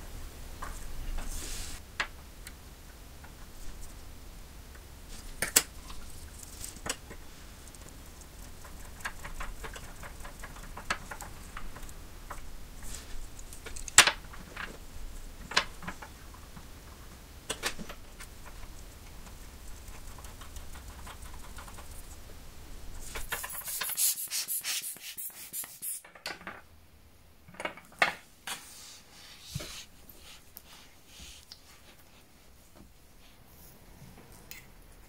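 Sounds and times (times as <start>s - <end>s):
rustling hiss: 0.0s - 1.9s.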